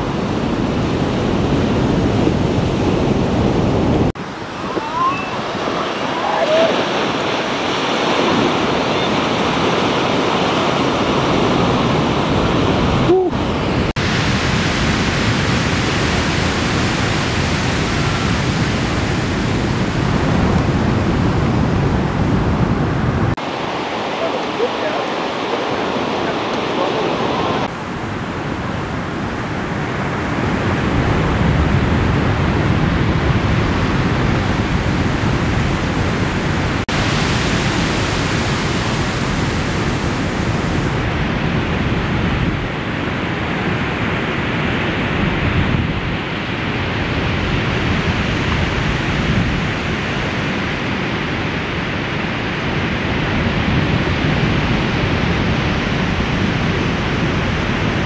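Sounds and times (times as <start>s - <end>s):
ocean surf rushing: 0.0s - 58.0s.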